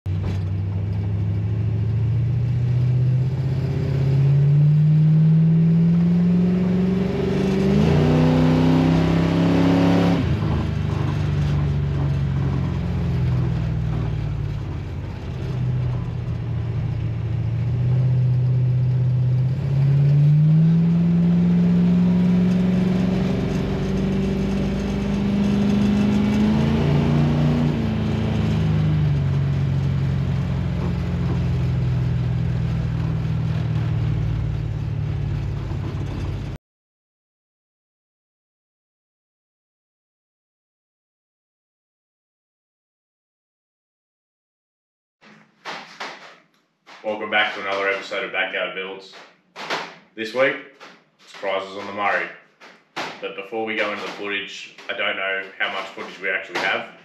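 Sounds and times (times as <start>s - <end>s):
car engine revving: 0.1s - 36.6s, 46.9s - 48.4s.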